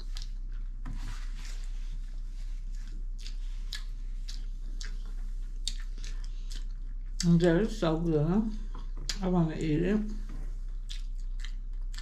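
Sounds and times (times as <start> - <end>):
food chewing mouth clicks: 0.0 - 0.6, 2.7 - 7.6, 8.6 - 9.3, 10.6 - 12.0
low steady hum: 0.0 - 12.0.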